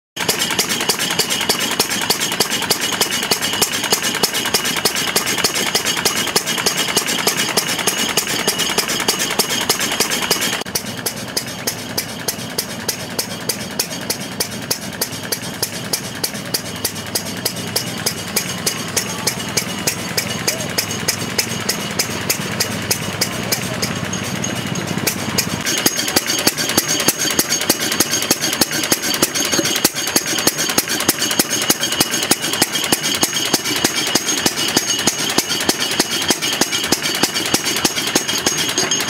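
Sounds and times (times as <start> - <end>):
stationary engine running: 0.2 - 39.0.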